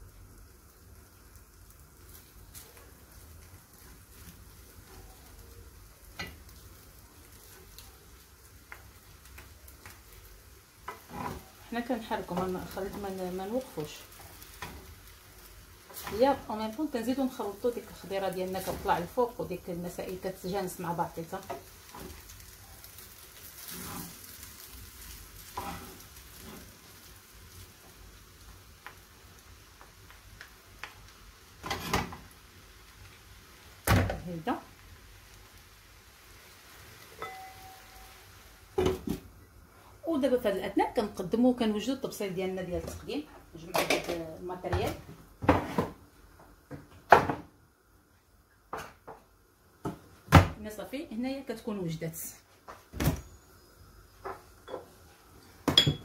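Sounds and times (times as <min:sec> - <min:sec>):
food sizzling in a pan: 0:00.0 - 0:56.0
wooden spoons scraping metal pan: 0:23.6 - 0:24.2, 0:25.5 - 0:26.7.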